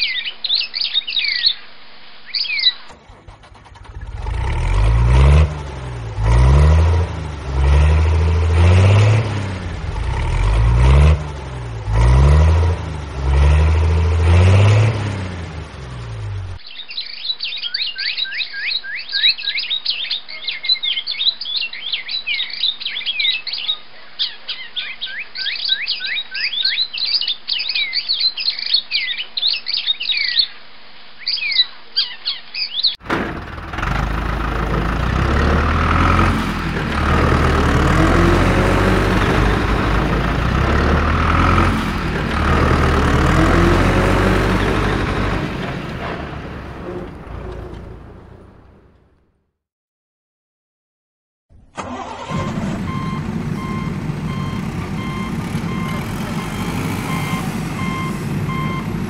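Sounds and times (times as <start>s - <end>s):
rapid bird-like chirping: 0.0s - 2.9s, 16.6s - 33.0s.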